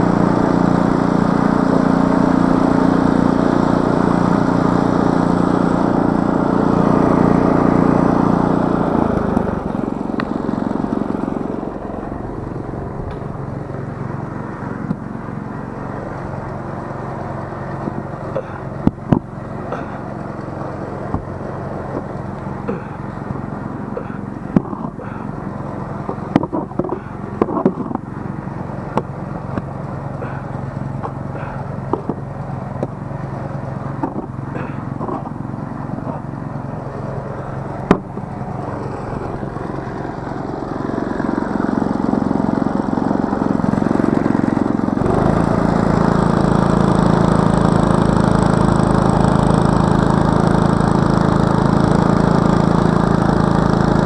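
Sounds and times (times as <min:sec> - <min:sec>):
snowblower engine running: 0:00.0 - 0:54.0
snow shovel scraping: 0:19.7 - 0:20.0, 0:25.9 - 0:29.6, 0:30.2 - 0:32.2, 0:33.9 - 0:38.3.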